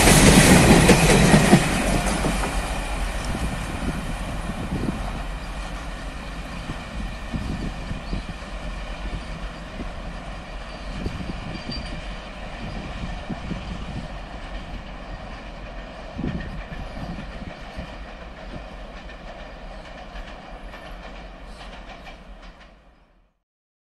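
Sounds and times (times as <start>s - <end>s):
train wheels knocking over rail joints: 0.0s - 3.9s
train rolling rumble: 0.0s - 23.3s.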